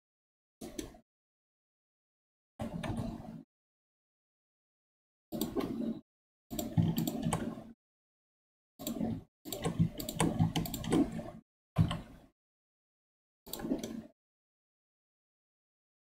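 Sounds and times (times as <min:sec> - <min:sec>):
mouse clicks: 0:08.8 - 0:11.2
computer keyboard clicks: 0:08.8 - 0:12.1.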